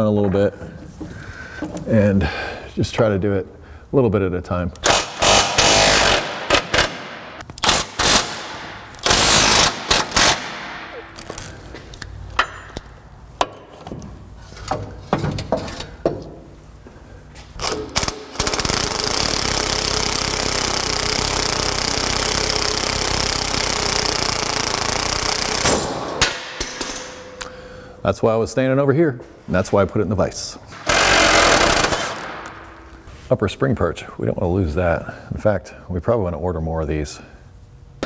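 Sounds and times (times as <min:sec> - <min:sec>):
impact wrench hammering: 0:04.8 - 0:11.3, 0:12.3 - 0:13.9, 0:17.6 - 0:27.5, 0:30.7 - 0:32.9.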